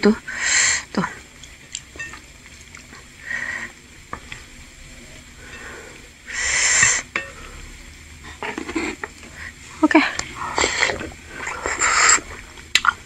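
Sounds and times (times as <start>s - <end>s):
spoon scraping and stirring broth: 8.2s - 9.4s.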